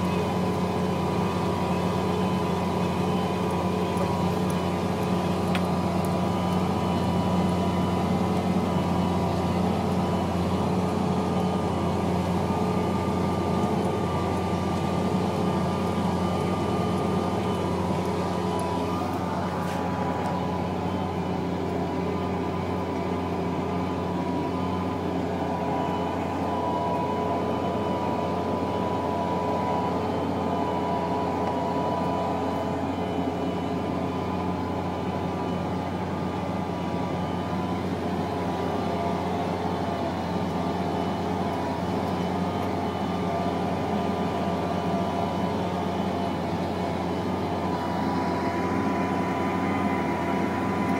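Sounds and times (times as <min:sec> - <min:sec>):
diesel engine drone: 0:00.0 - 0:50.9
high whine: 0:00.0 - 0:50.9.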